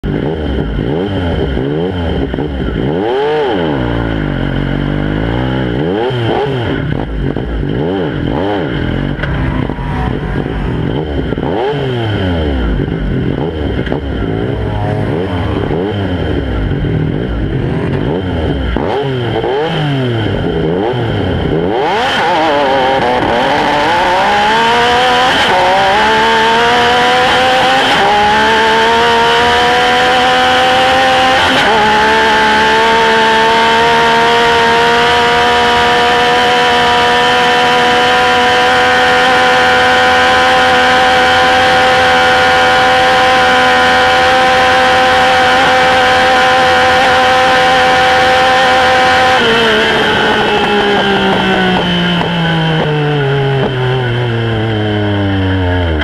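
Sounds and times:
engine at full throttle: 0.0s - 56.0s
off-road engines passing: 0.0s - 56.0s.

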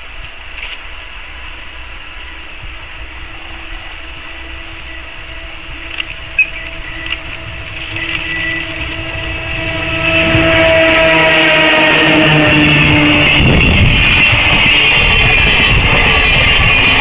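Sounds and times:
electric locomotive hum and rumble: 0.0s - 17.0s
sharp clicks: 0.6s - 0.9s, 5.8s - 9.0s.

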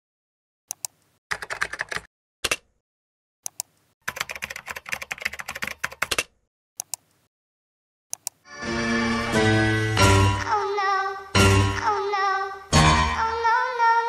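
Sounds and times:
typing on computer keyboard: 0.7s - 2.6s, 3.5s - 7.0s.

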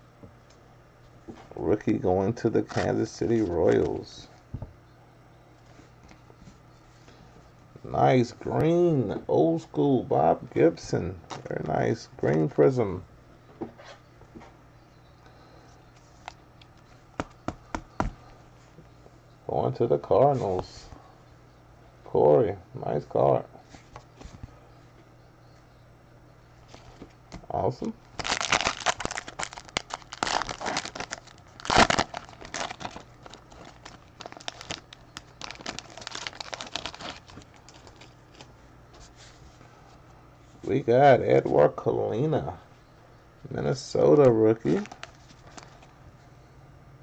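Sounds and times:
faint steady hum: 0.0s - 47.0s
packaging crinkling and rustling: 28.1s - 38.5s, 44.6s - 45.9s.

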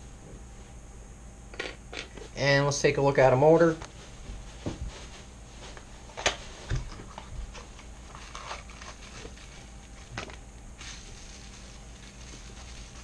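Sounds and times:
plastic crinkling: 10.8s - 13.0s.

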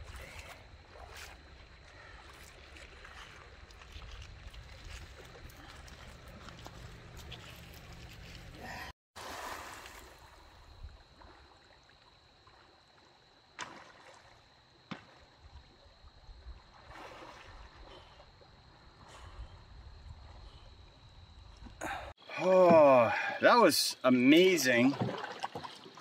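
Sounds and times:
river water running: 0.0s - 12.9s, 21.8s - 26.0s.

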